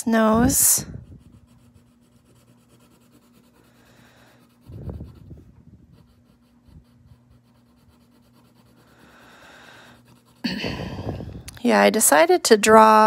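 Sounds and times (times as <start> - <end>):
pencil scratching on paper: 0.4 - 10.6.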